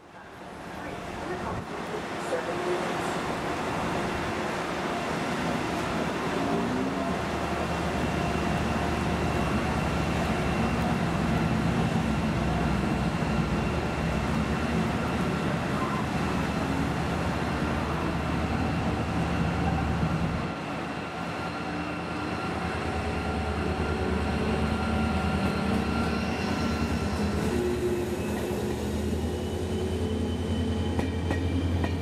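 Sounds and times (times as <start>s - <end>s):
diesel locomotive engine drone: 0.0s - 32.0s.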